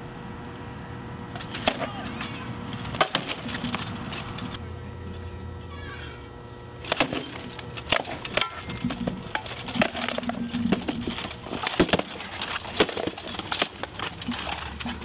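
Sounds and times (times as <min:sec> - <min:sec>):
practice swords hitting shields: 0:01.4 - 0:03.9, 0:06.8 - 0:15.0.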